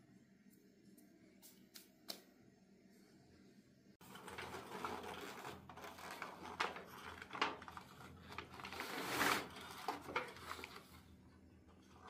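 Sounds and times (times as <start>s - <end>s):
aluminium foil crinkling: 4.0s - 12.0s.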